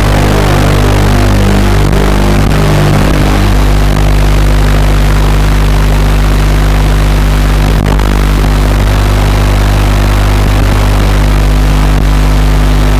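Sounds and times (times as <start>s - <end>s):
loud electrical buzz and hiss: 0.0s - 12.9s.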